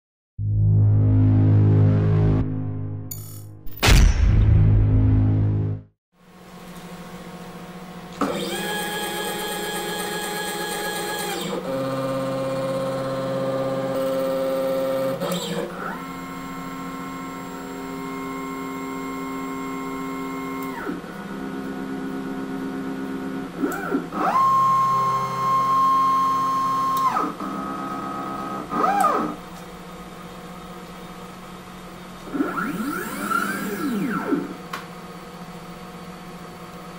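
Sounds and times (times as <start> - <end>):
electronic jingle: 0.4 - 5.9
stepper motors whining: 32.2 - 34.6.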